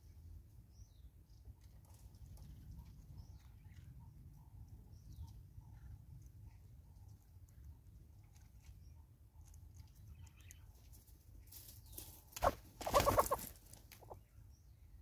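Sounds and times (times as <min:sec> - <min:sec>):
hornbill clucking: 0:12.4 - 0:14.2.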